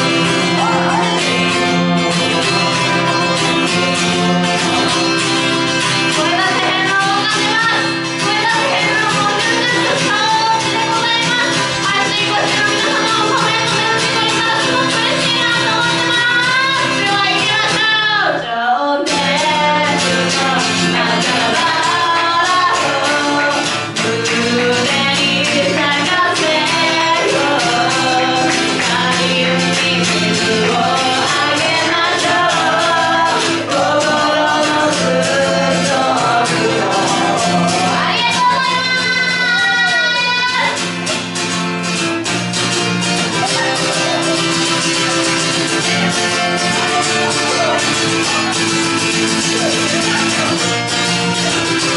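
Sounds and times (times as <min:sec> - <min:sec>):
acoustic guitar strumming: 0:00.0 - 0:51.9
woman singing rock song: 0:06.0 - 0:40.8.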